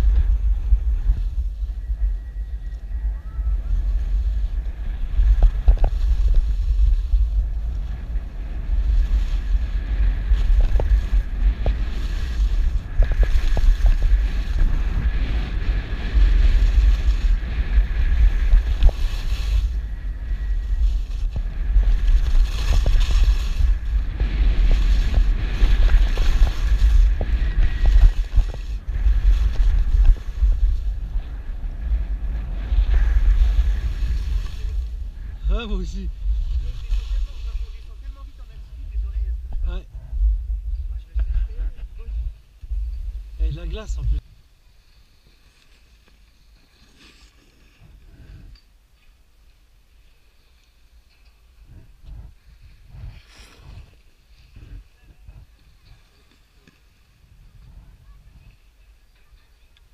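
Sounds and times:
wind buffeting microphone: 0:00.0 - 0:44.5, 0:50.8 - 0:59.9
skis hissing on snow: 0:03.9 - 0:31.4, 0:32.2 - 0:38.5, 0:44.6 - 0:48.4, 0:52.4 - 0:55.0.

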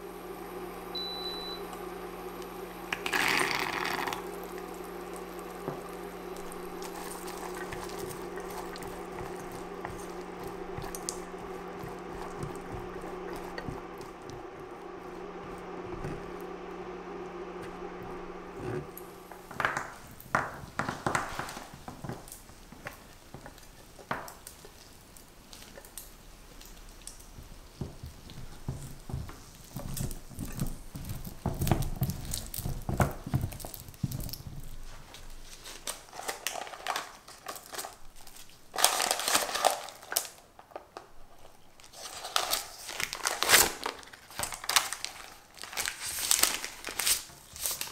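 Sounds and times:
steady hum: 0:00.0 - 0:35.6
plastic film crinkling: 0:03.0 - 0:27.4, 0:28.1 - 0:47.9
spatula stirring nuts in syrup: 0:04.2 - 0:19.6
clicks and crackles of nuts: 0:19.4 - 0:47.9.

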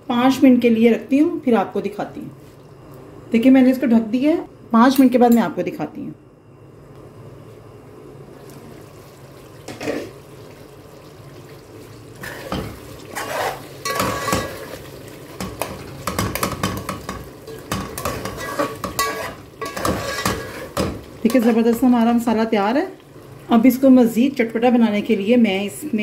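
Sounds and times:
low steady hum: 0:00.0 - 0:26.0
metal spoon scraping a pot: 0:13.1 - 0:14.7, 0:17.5 - 0:21.6.

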